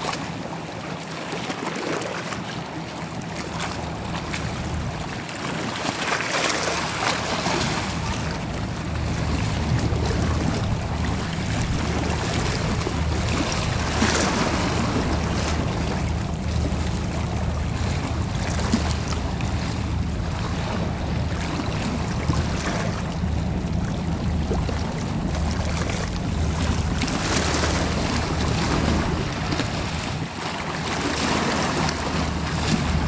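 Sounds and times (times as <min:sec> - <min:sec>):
water washing along hull: 0:00.0 - 0:33.0
wind on microphone: 0:06.7 - 0:33.0
ferry engines droning: 0:06.8 - 0:33.0.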